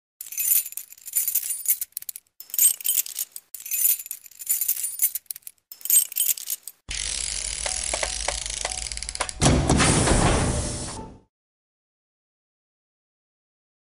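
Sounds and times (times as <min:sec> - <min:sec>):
bright metallic jingling: 0:00.2 - 0:06.8.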